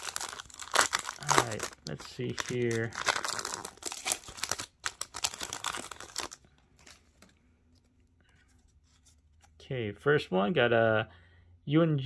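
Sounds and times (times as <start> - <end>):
foil wrapper crinkling and tearing: 0.0 - 7.3
faint rustles of cards: 1.1 - 9.6.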